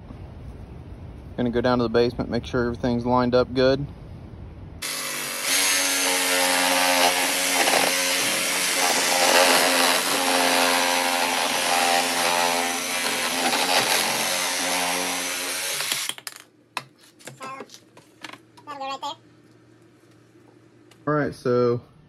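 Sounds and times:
reciprocating saw cutting plastic pipe: 0:04.8 - 0:16.1.

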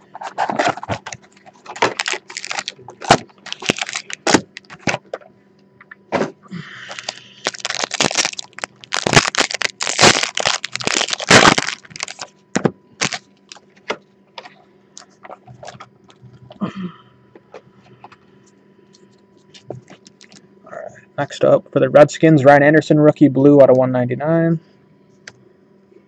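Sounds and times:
foil pack crinkling and tearing: 0:00.1 - 0:05.0, 0:06.9 - 0:12.3, 0:13.0 - 0:13.6, 0:19.8 - 0:20.4
cards clicking and rustling: 0:00.2 - 0:05.2.

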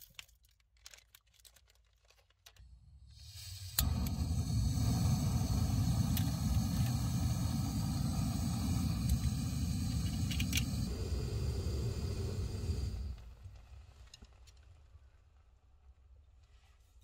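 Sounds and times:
gas stove flame rushing: 0:02.7 - 0:13.7.

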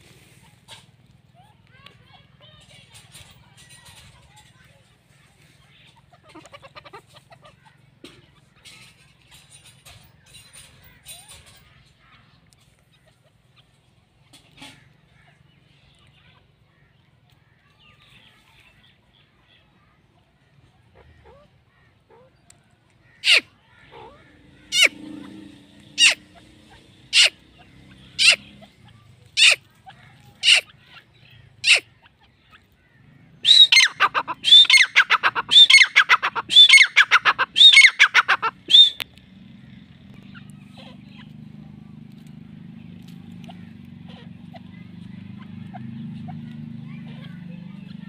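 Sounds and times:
francolin calling: 0:33.4 - 0:39.2.

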